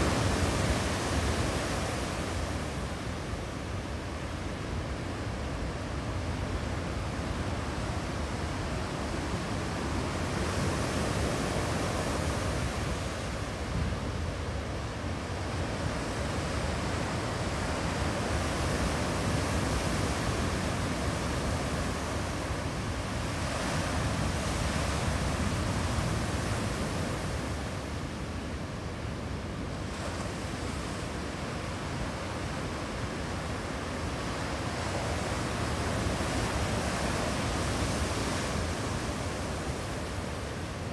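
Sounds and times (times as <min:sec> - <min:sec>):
ocean surf breaking on rocky shore: 0:00.0 - 0:03.3.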